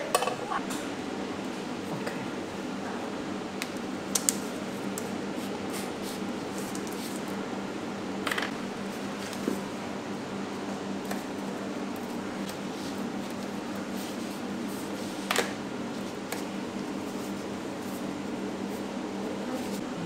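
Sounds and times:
room ventilation hum: 0:00.0 - 0:20.0.

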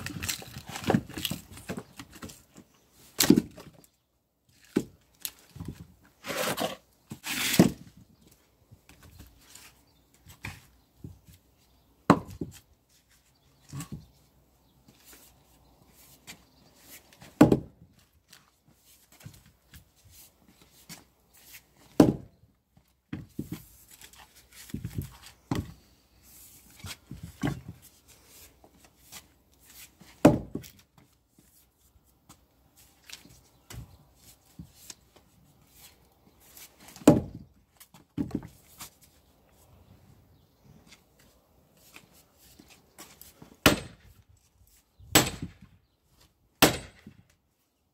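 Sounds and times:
maul striking wood: 0:12.1 - 0:12.5, 0:17.4 - 0:17.7, 0:21.9 - 0:22.3, 0:30.2 - 0:30.6, 0:36.9 - 0:37.4, 0:43.6 - 0:44.1, 0:45.1 - 0:45.7, 0:46.6 - 0:47.2.

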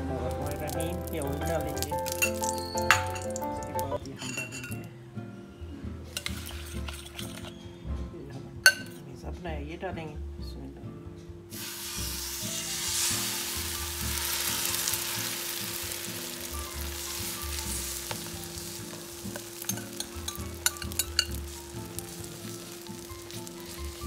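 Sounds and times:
egg sizzling on a hot pan: 0:00.4 - 0:03.2, 0:06.2 - 0:07.4, 0:11.5 - 0:24.0.

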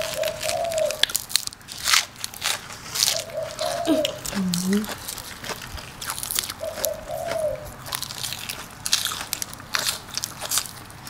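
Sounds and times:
crunchy chewing of raw food: 0:00.0 - 0:11.0
person humming: 0:03.7 - 0:04.9.

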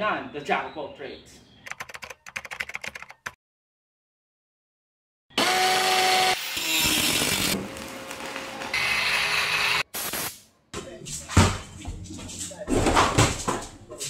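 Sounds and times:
power tools running: 0:05.4 - 0:09.8.

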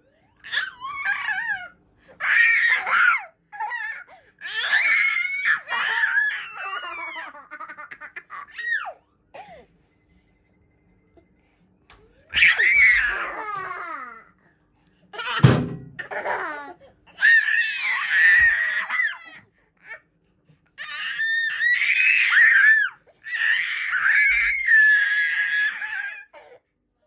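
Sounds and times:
toddlers laughing: 0:05.5 - 0:09.0, 0:16.0 - 0:16.8
thump: 0:15.4 - 0:16.0.

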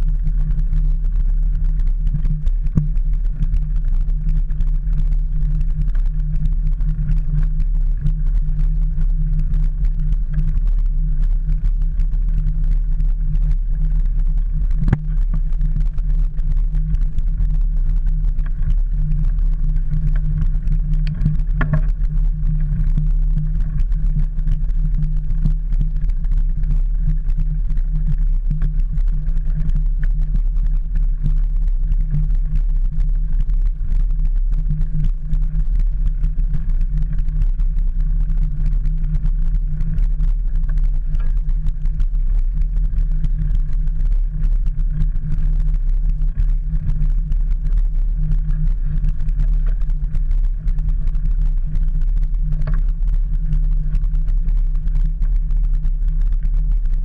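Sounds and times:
bike rolling on rough path: 0:00.0 - 0:57.0.

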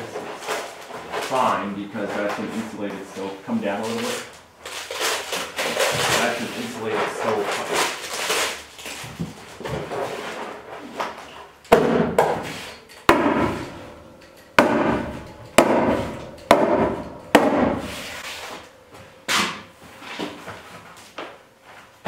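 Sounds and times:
hammer striking: 0:11.7 - 0:18.6.

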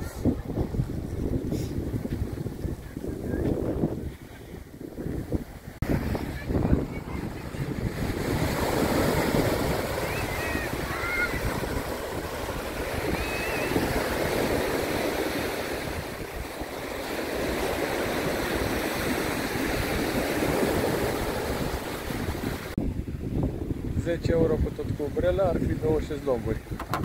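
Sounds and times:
waves washing onto sand: 0:00.0 - 0:22.8
wind buffeting microphone: 0:00.0 - 0:27.0
faint high cries: 0:10.0 - 0:11.5, 0:13.1 - 0:13.8.

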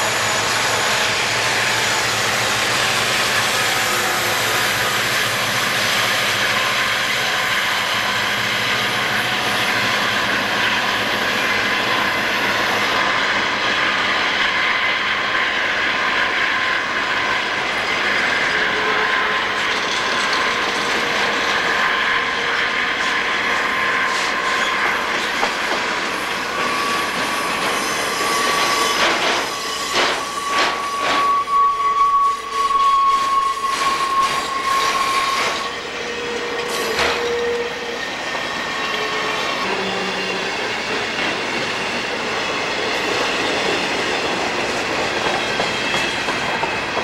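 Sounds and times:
diesel locomotives under load: 0:00.0 - 0:47.0
train wheels rolling: 0:00.0 - 0:47.0
wheel flange squeal: 0:26.2 - 0:43.6.

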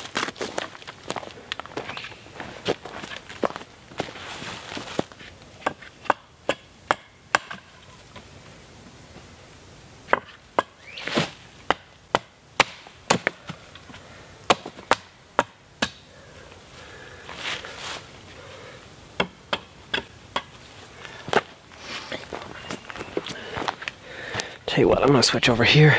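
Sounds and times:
axe chopping wood: 0:05.6 - 0:07.7, 0:10.1 - 0:13.6, 0:14.4 - 0:16.0, 0:19.2 - 0:20.5.

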